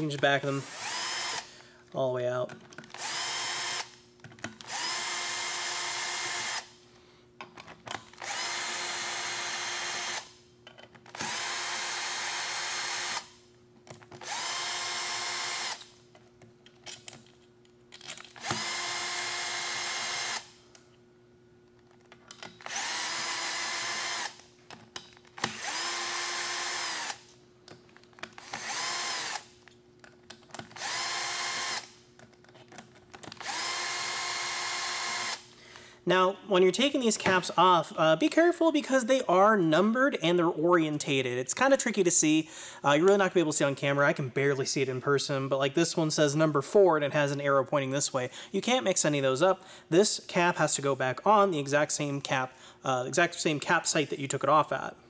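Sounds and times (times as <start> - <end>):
cordless drill spinning in bursts: 0.4 - 1.5, 2.9 - 4.0, 4.6 - 6.8, 8.2 - 10.3, 11.2 - 13.3, 14.2 - 15.9, 18.4 - 20.6, 22.7 - 24.4, 25.4 - 27.3, 28.4 - 29.5, 30.8 - 32.0, 33.4 - 35.5.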